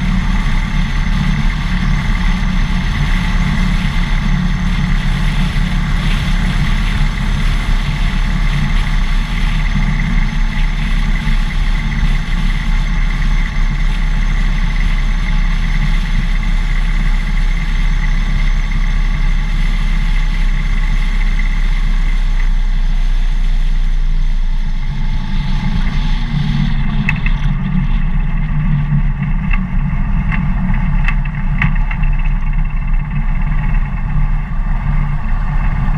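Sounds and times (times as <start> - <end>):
motorcycle engine running: 0.0 - 35.9
wind noise on microphone: 0.0 - 35.9.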